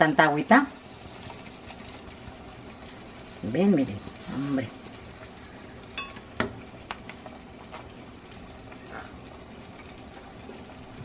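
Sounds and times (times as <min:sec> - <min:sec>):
sauce dripping: 0:00.7 - 0:03.4.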